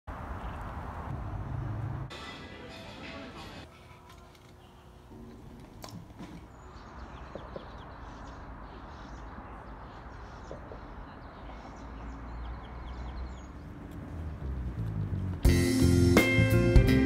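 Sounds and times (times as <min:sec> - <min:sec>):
small birds chirping: 0:04.5 - 0:15.5.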